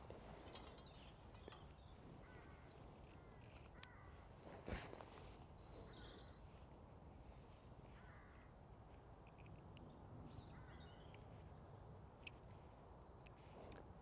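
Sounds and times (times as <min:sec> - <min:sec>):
distant bird calls: 0:00.0 - 0:14.0.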